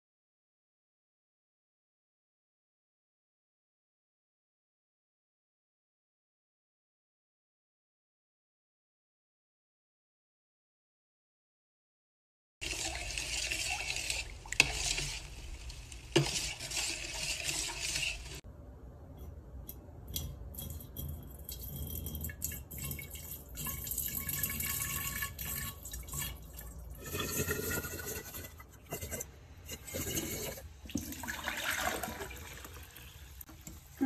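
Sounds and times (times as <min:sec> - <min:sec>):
liquid pouring into glass bottle: 0:20.1 - 0:28.6, 0:29.9 - 0:33.1.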